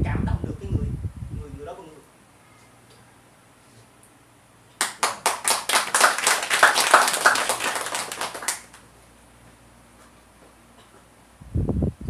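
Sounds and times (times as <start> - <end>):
small group applauding: 4.8 - 9.0.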